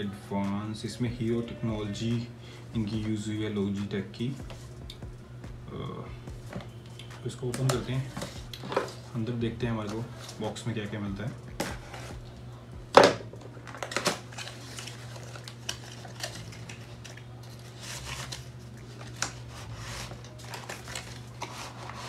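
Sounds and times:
low hum: 0.0 - 22.0
cardboard rustling and sliding: 17.6 - 22.0.

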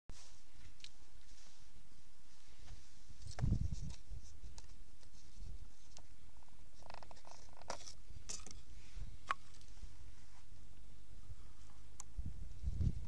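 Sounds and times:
wind rumble on microphone: 3.2 - 4.3, 12.0 - 13.0
clicks and rustles of handling: 3.2 - 8.7.

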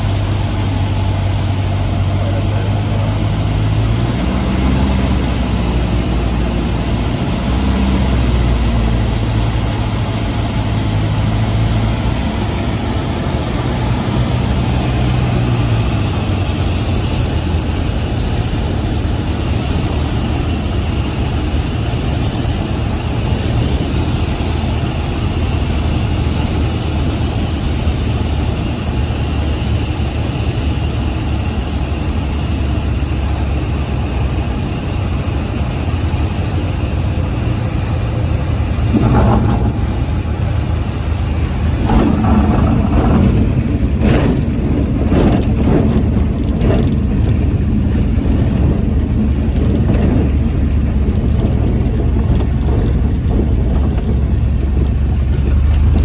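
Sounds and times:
aircraft engine droning: 0.0 - 56.0
rumbles and knocks: 38.6 - 56.0.

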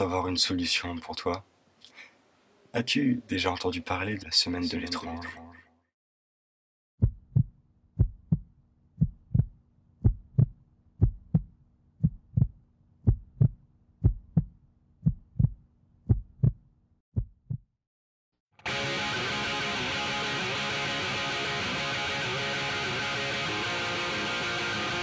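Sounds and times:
heartbeat thumping: 7.0 - 16.6, 17.2 - 17.7.

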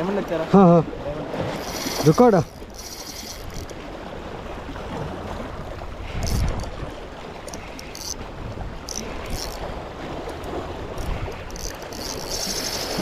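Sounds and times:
water noise: 0.0 - 13.0
wind on microphone: 0.9 - 13.0.

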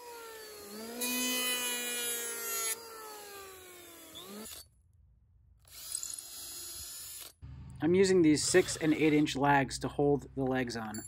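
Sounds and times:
electric hand planer on wood: 0.0 - 4.5.

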